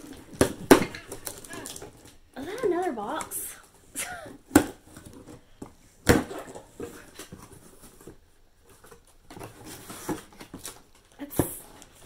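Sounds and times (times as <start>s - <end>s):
cardboard rustling: 4.5s - 12.0s.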